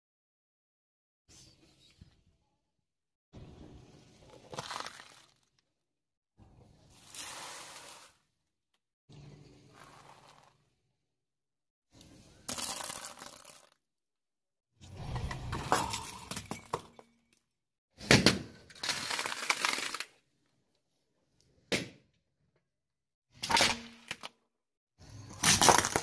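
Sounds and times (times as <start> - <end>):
tyre crushing objects on concrete: 25.3 - 26.0.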